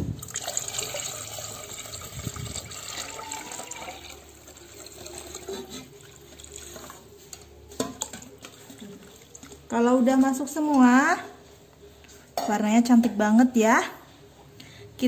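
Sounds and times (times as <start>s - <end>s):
liquid pouring and splashing: 0.2s - 7.1s, 7.8s - 9.7s.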